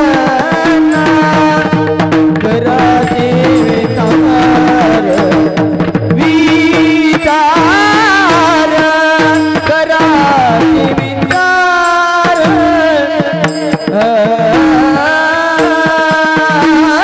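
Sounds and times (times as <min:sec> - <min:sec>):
drum: 0:00.0 - 0:17.0
men singing devotional melody: 0:00.0 - 0:17.0
hand cymbals clashing: 0:02.8 - 0:16.2.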